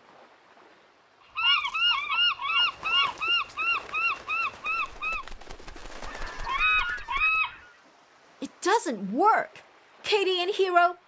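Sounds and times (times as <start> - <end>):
seagulls calling: 1.3 - 7.8.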